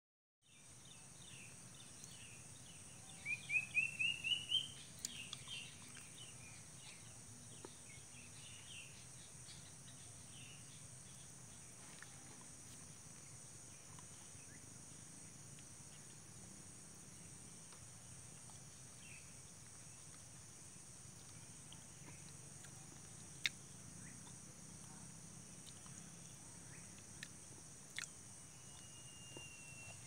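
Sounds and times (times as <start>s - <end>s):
high insect drone: 0.5s - 30.0s
bird chirps: 0.6s - 11.6s, 28.4s - 30.0s
cuckoo whistled rising notes: 28.6s - 30.0s.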